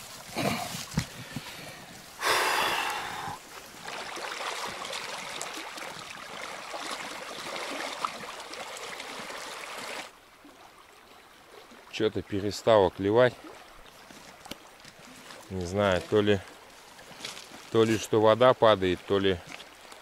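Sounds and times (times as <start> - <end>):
river water rushing: 2.2 - 12.0.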